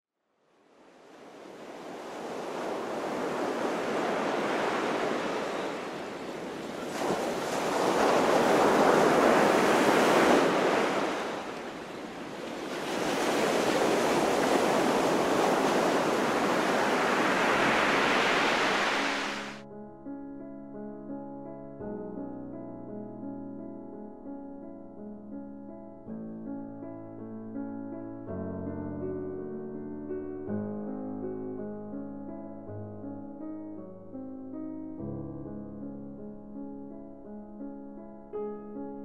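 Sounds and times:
ocean waves washing in: 0:00.6 - 0:19.6.

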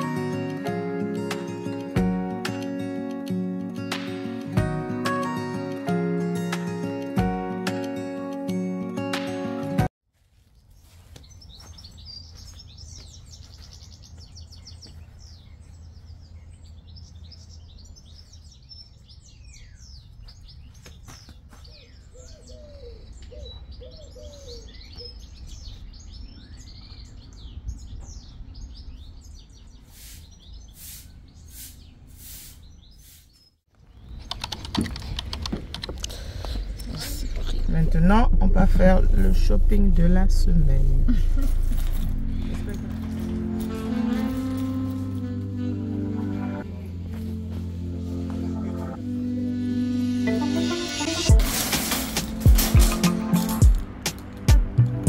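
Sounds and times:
small birds chirping: 0:10.4 - 0:38.4
sharp clicks: 0:34.2 - 0:36.6.

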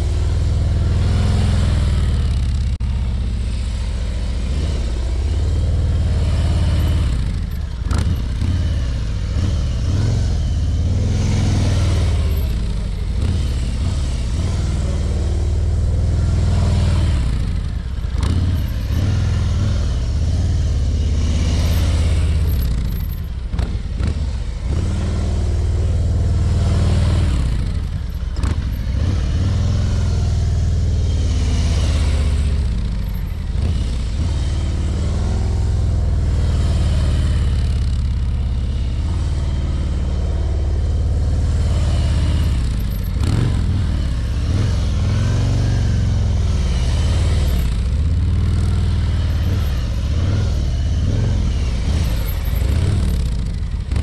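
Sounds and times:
motorcycle engine passing: 0:03.4 - 0:27.9.

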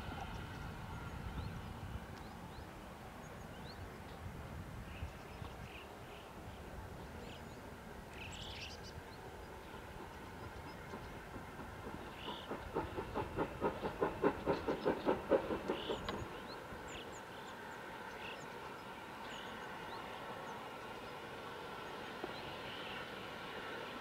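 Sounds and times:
steam locomotive exhaust beats: 0:09.2 - 0:17.7.

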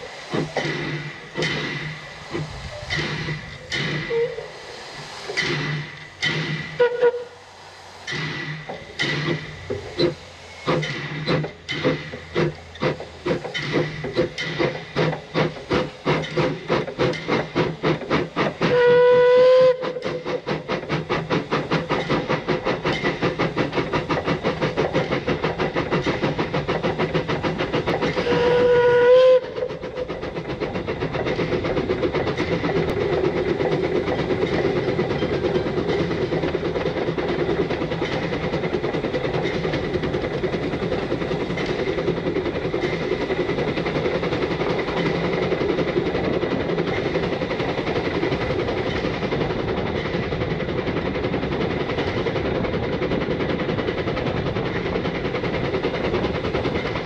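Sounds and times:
steam locomotive chuffing: 0:00.0 - 0:57.0
train whistle blasts: 0:06.8 - 0:07.4, 0:18.6 - 0:20.0, 0:28.2 - 0:29.6.

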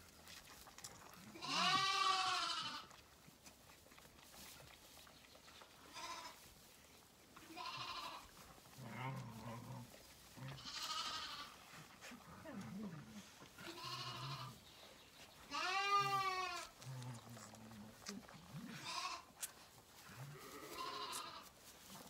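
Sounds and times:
lambs bleating: 0:01.3 - 0:02.9, 0:05.8 - 0:06.4, 0:07.4 - 0:09.3, 0:10.5 - 0:11.6, 0:13.6 - 0:14.6, 0:15.5 - 0:16.8, 0:18.7 - 0:19.3, 0:20.3 - 0:21.5.

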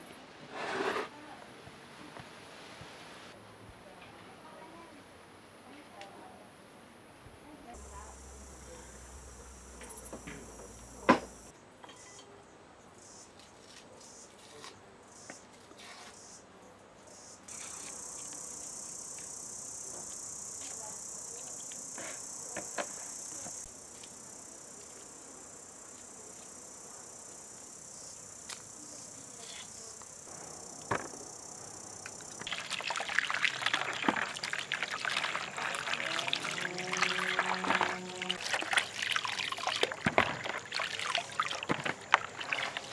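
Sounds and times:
insects chirring: 0:07.8 - 0:12.2, 0:13.0 - 0:14.4, 0:15.1 - 0:16.4, 0:17.0 - 0:42.9
water splashing in a basin: 0:32.4 - 0:42.9.

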